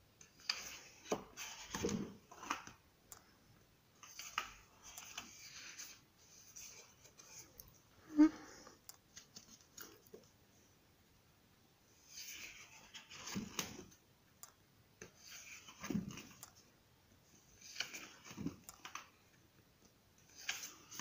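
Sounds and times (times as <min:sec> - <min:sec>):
paper pages rustling: 0:17.6 - 0:19.2, 0:20.3 - 0:21.0.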